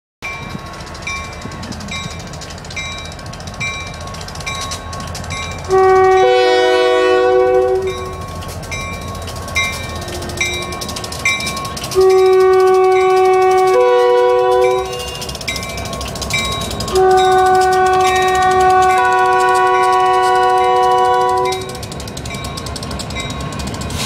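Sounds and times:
locomotive rumble: 0.2 - 24.0
locomotive air horn: 5.7 - 8.2, 12.0 - 15.4, 16.9 - 21.8.

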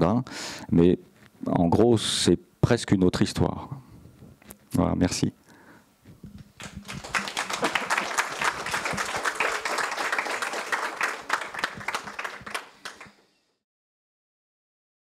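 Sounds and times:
audience applauding: 6.6 - 13.2.

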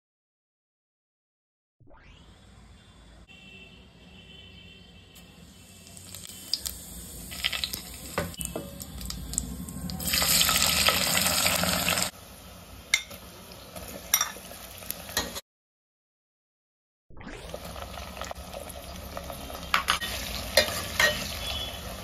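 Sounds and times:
spices sizzling in hot oil: 5.2 - 15.4, 17.5 - 22.0
onions sizzling in oil: 5.3 - 15.4, 17.5 - 22.0.

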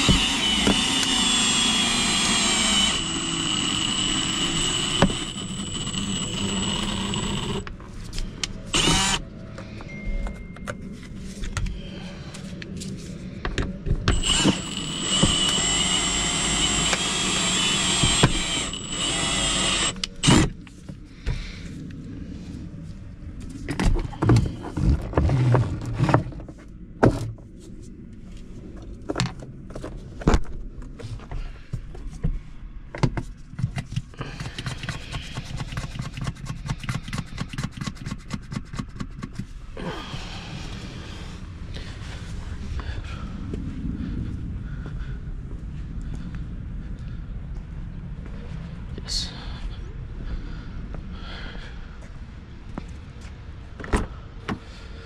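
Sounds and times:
power tool whining: 0.0 - 7.7, 8.4 - 9.2, 14.1 - 20.6.

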